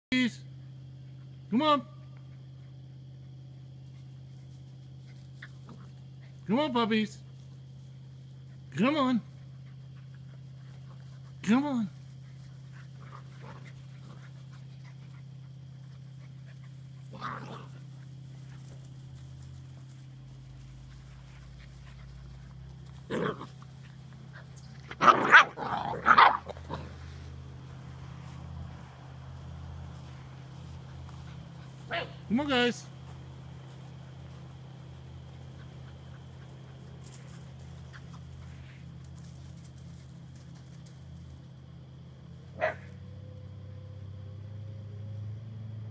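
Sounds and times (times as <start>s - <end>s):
steady low hum: 0.1s - 44.7s
puppies panting: 7.4s - 11.4s, 12.0s - 25.0s, 26.6s - 32.3s, 32.9s - 39.2s.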